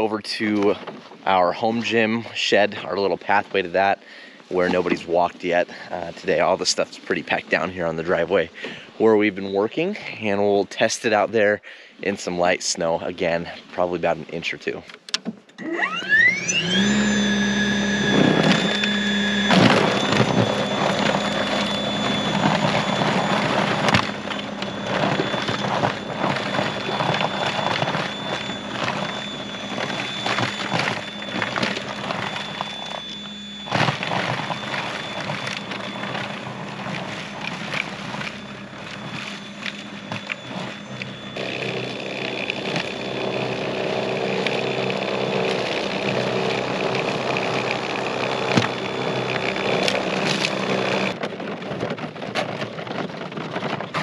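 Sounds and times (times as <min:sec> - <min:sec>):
snowblower electric motor whining: 0:00.0 - 0:10.6, 0:15.6 - 0:54.0
auger throwing snow: 0:16.2 - 0:51.2.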